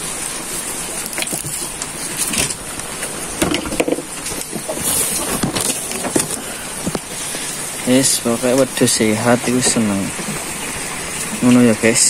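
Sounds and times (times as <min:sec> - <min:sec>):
goats knocking and rustling: 0:00.0 - 0:11.7
rain on a shed: 0:00.0 - 0:12.0.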